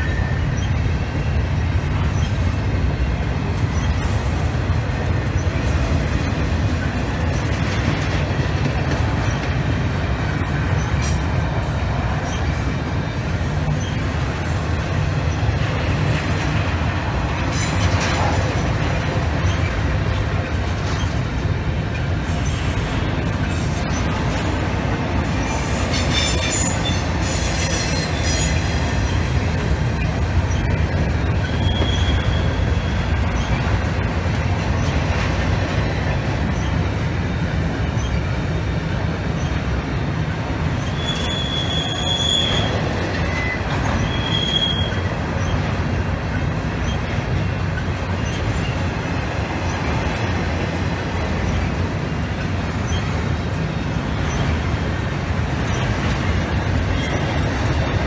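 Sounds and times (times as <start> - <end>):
train wheels rumbling on rails: 0.0 - 58.0
high wheel squeals: 3.5 - 4.4, 12.2 - 15.5, 22.2 - 24.3, 25.4 - 35.0, 40.7 - 45.7, 46.8 - 48.9, 52.8 - 54.5, 55.6 - 57.7.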